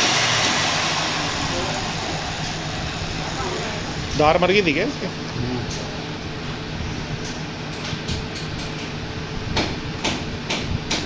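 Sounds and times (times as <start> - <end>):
low hum: 0.2 - 7.4.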